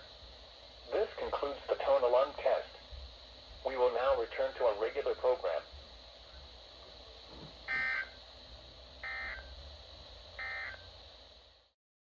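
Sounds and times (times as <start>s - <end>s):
buzzy data bursts: 0.0s - 11.6s
radio receiver hiss and hum: 0.0s - 11.8s.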